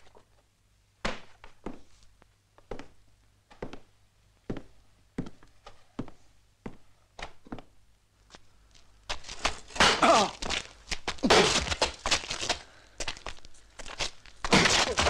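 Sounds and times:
footsteps: 1.1s - 15.0s
thuds and scuffling of a fistfight: 9.1s - 15.0s.

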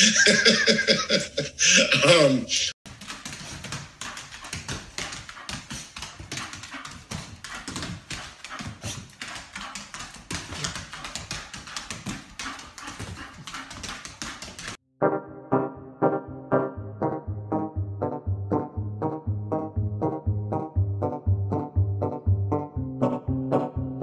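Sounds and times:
dog claws clicking on wooden floor: 2.9s - 14.8s
keyboard music: 14.8s - 24.0s.

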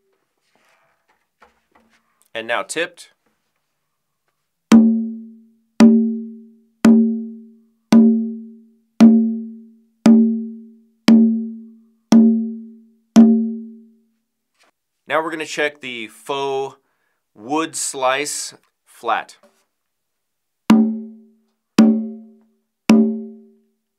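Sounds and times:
conga drum strokes: 4.7s - 5.2s, 5.8s - 6.2s, 7.9s - 12.6s, 13.2s - 13.8s, 20.7s - 21.2s, 21.8s - 22.3s, 22.9s - 23.4s.

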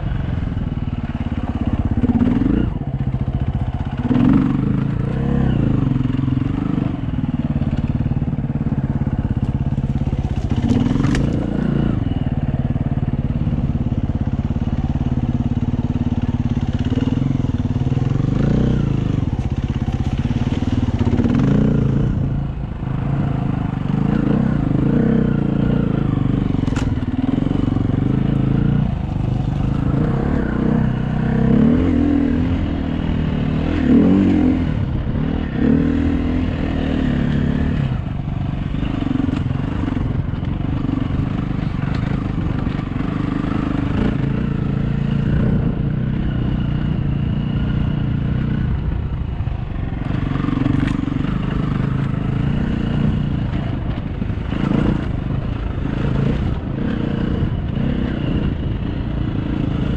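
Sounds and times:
dirt bike engine revving: 1.1s - 59.9s.

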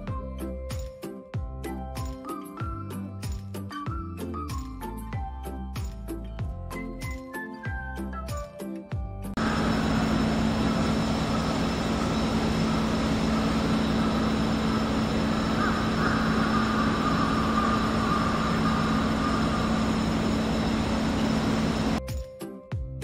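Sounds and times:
engine and machinery hum: 9.4s - 22.0s
faint wavering high tone: 9.4s - 22.0s.

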